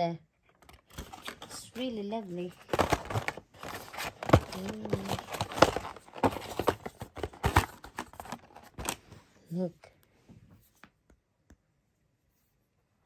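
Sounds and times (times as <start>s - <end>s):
objects knocking and clicking: 2.5s - 8.9s.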